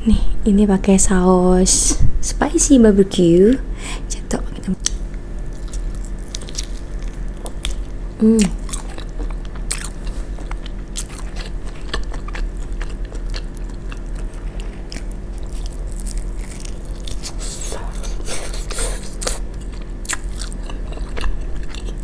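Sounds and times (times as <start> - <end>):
biting and chewing: 4.8 - 22.0
person humming: 8.2 - 8.6.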